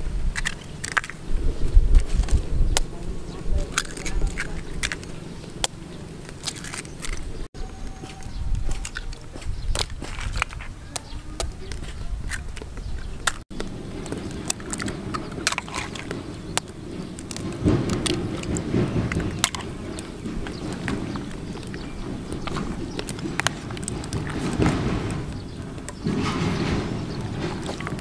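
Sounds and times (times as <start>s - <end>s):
low rumble: 0.0s - 28.0s
eggshells cracking: 0.3s - 1.3s, 3.6s - 7.5s, 11.4s - 26.1s, 26.8s - 28.0s.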